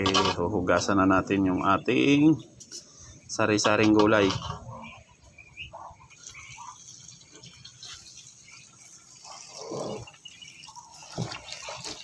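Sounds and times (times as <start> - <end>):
water dripping and splashing: 5.3 - 12.0.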